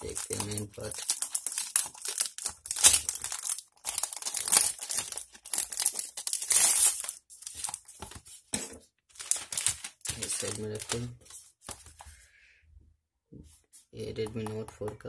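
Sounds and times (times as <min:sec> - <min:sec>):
plastic packaging crinkling: 0:00.0 - 0:08.4, 0:09.1 - 0:12.0.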